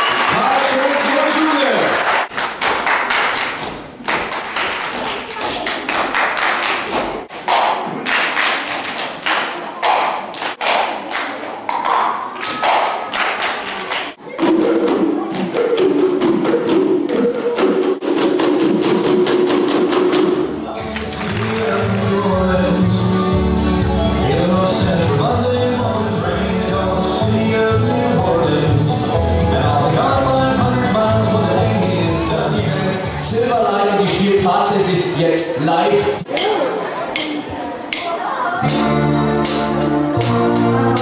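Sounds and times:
plastic cups tapped and slapped: 0:21.0 - 0:22.1.

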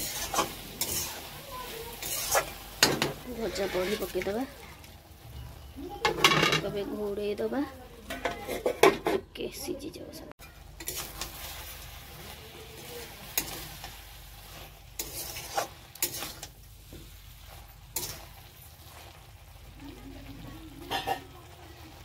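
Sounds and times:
spatula scraping and knocking pan: 0:00.0 - 0:04.4, 0:06.0 - 0:06.8, 0:14.6 - 0:17.2
frying sizzle: 0:00.0 - 0:22.0.

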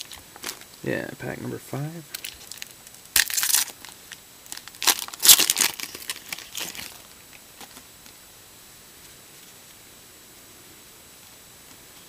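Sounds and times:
foil wrapper crinkling: 0:00.0 - 0:00.8, 0:02.1 - 0:07.9.

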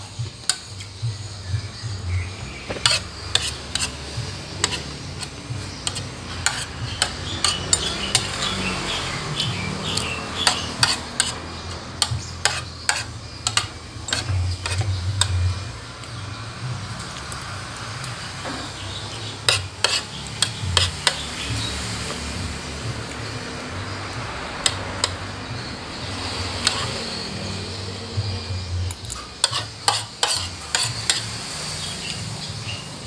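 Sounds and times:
metal spoon clinking on plate: 0:29.0 - 0:31.2.

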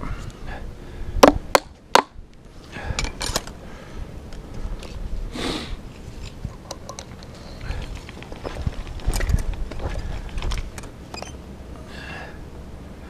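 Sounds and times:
tools clicking and tapping: 0:06.5 - 0:07.4.

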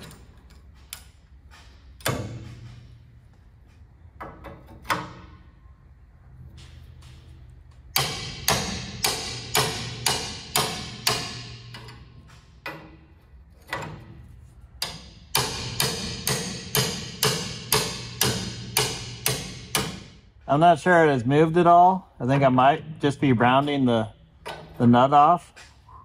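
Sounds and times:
hammer striking metal wrench: 0:07.9 - 0:13.1, 0:14.7 - 0:20.2.

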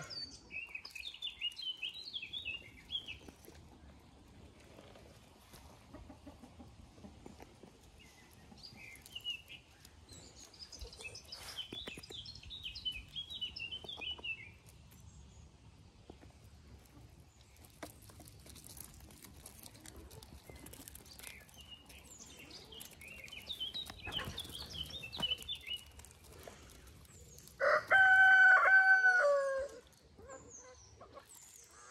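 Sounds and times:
songbird chirping: 0:00.0 - 0:31.9
rooster crowing: 0:27.6 - 0:29.8.

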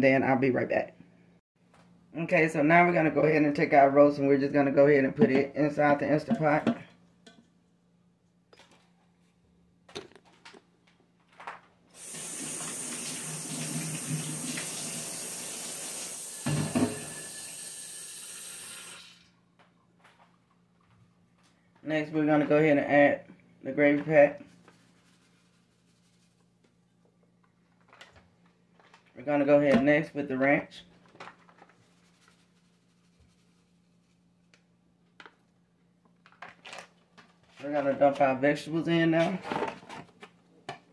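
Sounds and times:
water running into metal sink: 0:12.0 - 0:19.3.

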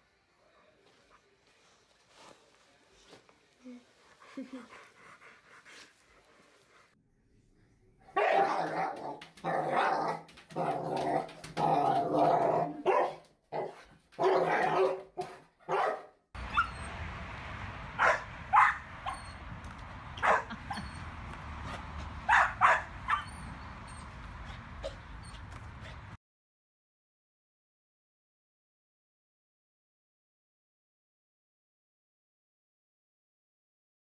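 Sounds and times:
dog barking: 0:08.2 - 0:10.8, 0:11.8 - 0:16.9, 0:18.0 - 0:19.4, 0:20.1 - 0:26.0
dog whining: 0:18.0 - 0:19.5, 0:20.2 - 0:26.0.

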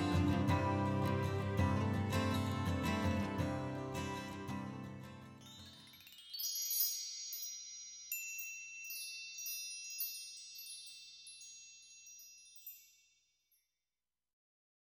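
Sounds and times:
high bell-like chime tinkles: 0:05.4 - 0:13.7.

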